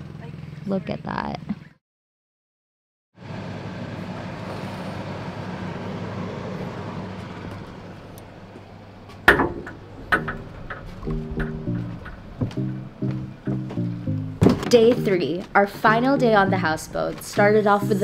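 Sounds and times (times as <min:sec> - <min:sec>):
steady hum: 0:03.5 - 0:18.0
glass door clacking open: 0:09.2 - 0:13.5.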